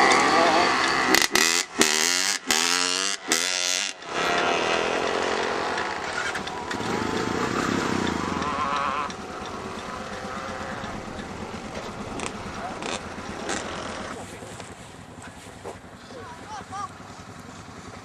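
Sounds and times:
quad bike engines revving: 0:00.0 - 0:18.0.

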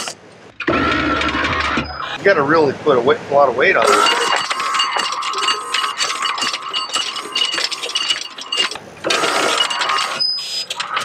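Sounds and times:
chain clinking and rattling: 0:03.8 - 0:11.0
windlass motor whining: 0:03.8 - 0:11.0.

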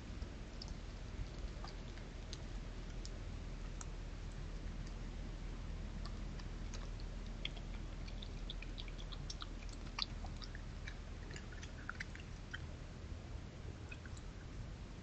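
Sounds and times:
steady low hum: 0:00.0 - 0:15.0
badger chewing crunches and clicks: 0:05.9 - 0:12.7.

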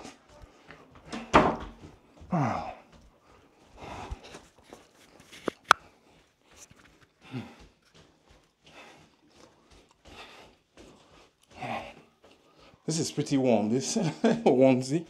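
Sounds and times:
man breathing hard: 0:02.0 - 0:06.4, 0:07.1 - 0:12.9
microphone handling clicks: 0:05.4 - 0:05.9.

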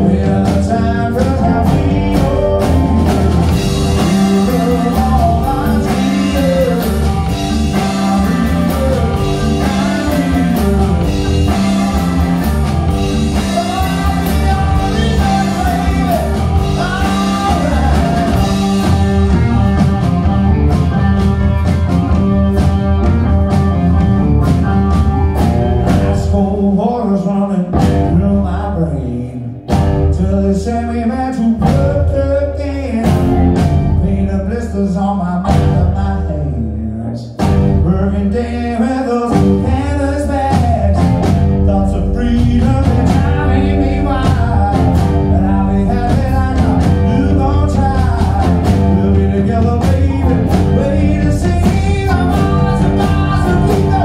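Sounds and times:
person singing: 0:00.0 - 0:21.7, 0:25.9 - 0:54.0
keyboard: 0:00.0 - 0:26.7
drum kit: 0:00.0 - 0:26.8, 0:27.7 - 0:28.5, 0:29.6 - 0:30.5, 0:31.5 - 0:34.5, 0:35.4 - 0:36.3, 0:37.3 - 0:38.1, 0:39.1 - 0:54.0
bass guitar: 0:00.0 - 0:54.0
electric guitar: 0:00.0 - 0:54.0.

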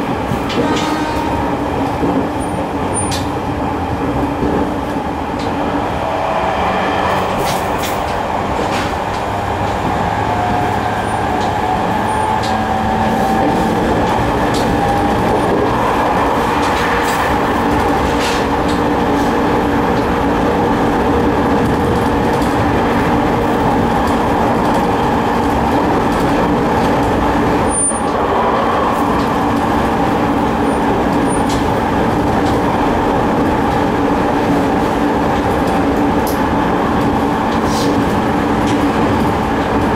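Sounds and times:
rail joint clicks: 0:00.0 - 0:39.9
train rolling noise: 0:00.0 - 0:39.9.

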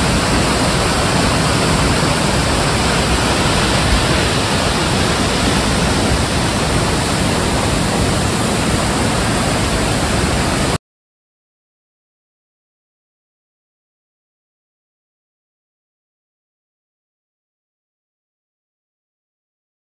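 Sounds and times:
waterfall rushing: 0:00.0 - 0:10.8.

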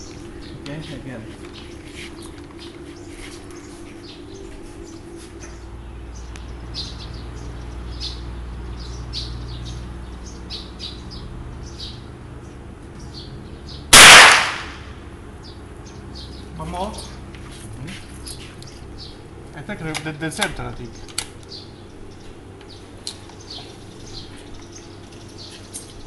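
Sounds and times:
small birds chirping: 0:00.0 - 0:14.2, 0:15.1 - 0:26.0
rifle shot: 0:13.9 - 0:14.9.

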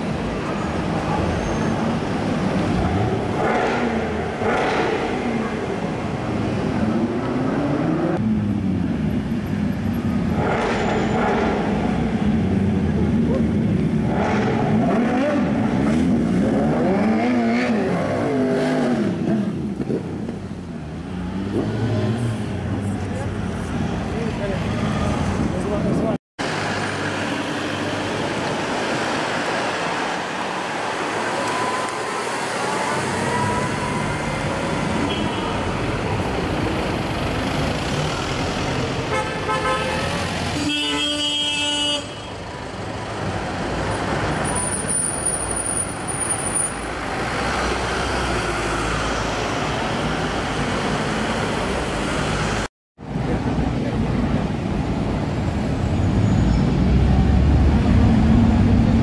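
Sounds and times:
car horn: 0:35.0 - 0:35.8, 0:39.1 - 0:42.4.

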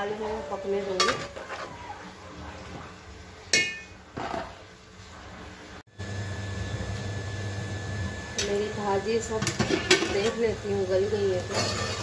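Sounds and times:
metal utensil clinking on pot: 0:03.5 - 0:04.0, 0:11.5 - 0:12.0.

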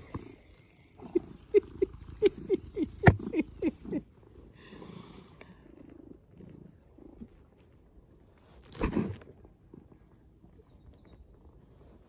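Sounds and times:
cat purring: 0:00.2 - 0:04.5.

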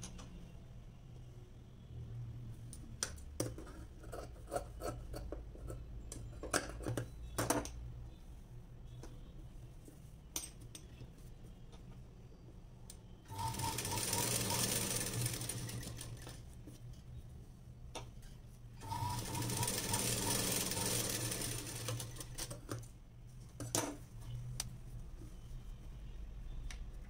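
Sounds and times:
sewing machine stitching: 0:13.3 - 0:16.4, 0:18.8 - 0:22.5.

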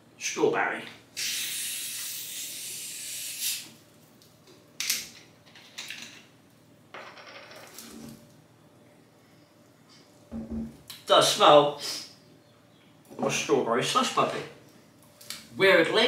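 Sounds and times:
carbonation gas hissing from bottle: 0:01.2 - 0:03.8.

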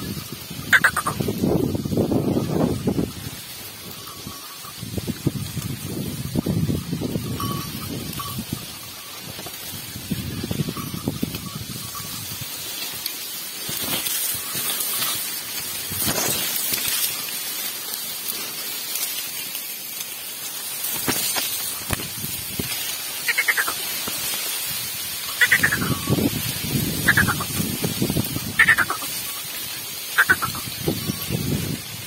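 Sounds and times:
leaves rustling and scraping: 0:00.0 - 0:32.0
short falling calls: 0:00.7 - 0:01.2, 0:23.2 - 0:23.9, 0:25.4 - 0:26.2, 0:27.0 - 0:27.6, 0:28.6 - 0:29.3, 0:30.1 - 0:30.8.

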